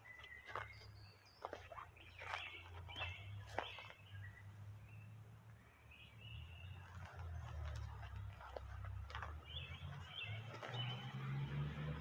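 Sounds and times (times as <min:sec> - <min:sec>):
footsteps on sandy ground: 0:00.0 - 0:04.8, 0:06.4 - 0:12.0
faint bird chirps: 0:00.0 - 0:07.8.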